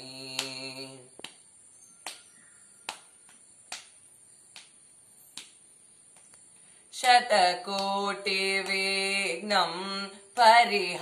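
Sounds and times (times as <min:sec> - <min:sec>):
faint hand claps: 0:00.3 - 0:01.4, 0:02.0 - 0:06.4, 0:07.0 - 0:09.0.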